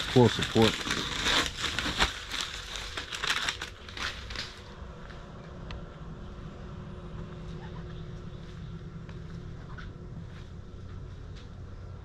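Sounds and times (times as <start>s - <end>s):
paper or plastic rustling: 0.0s - 4.7s.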